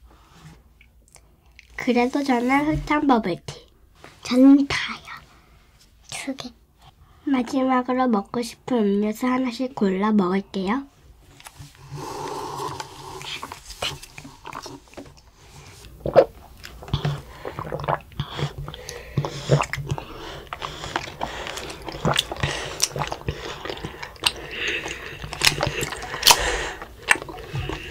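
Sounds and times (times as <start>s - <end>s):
slurping through straws: 11.7s - 27.9s
chewing: 12.2s - 27.9s.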